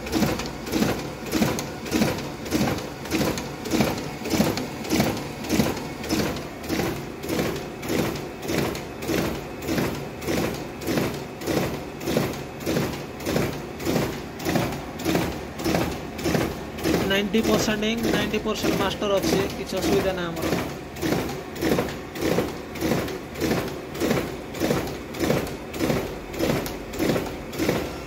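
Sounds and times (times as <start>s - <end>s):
duplicator printing sheets: 0.0s - 28.0s.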